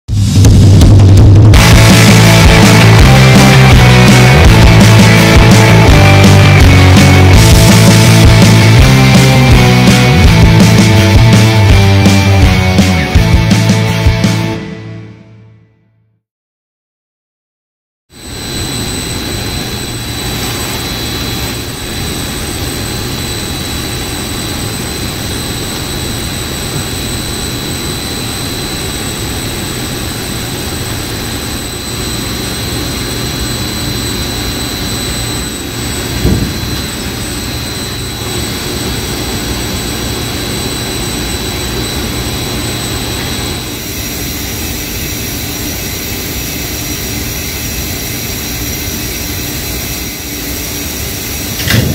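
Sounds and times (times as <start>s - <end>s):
machinery roar: 0.1s - 15.2s, 18.2s - 51.9s
high whine: 0.1s - 15.4s, 18.1s - 51.9s
thump: 36.2s - 36.9s, 51.6s - 51.9s.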